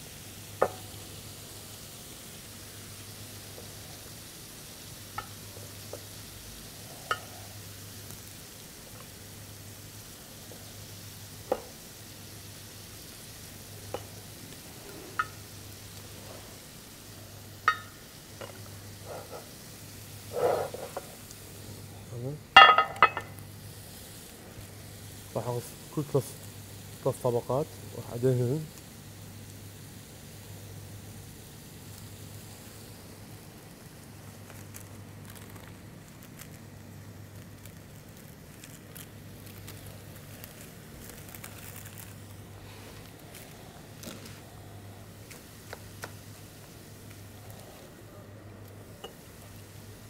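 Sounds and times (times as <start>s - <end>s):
pastry rustle: 11.7s - 28.7s, 31.6s - 50.0s
utensil clink: 17.7s - 18.6s, 22.6s - 23.3s
pastry sheets crinkling: 33.9s - 47.9s.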